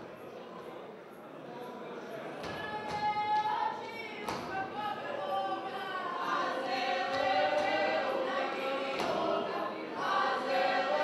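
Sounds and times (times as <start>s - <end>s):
men and women singing unaccompanied: 2.4s - 11.0s.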